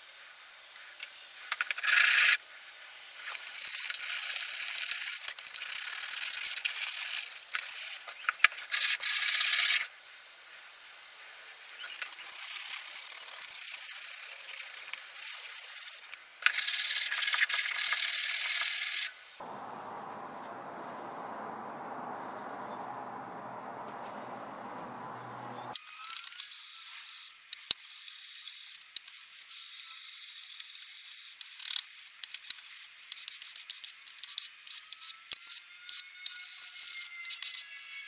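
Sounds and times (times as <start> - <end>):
steady low hiss: 19.4 - 25.7.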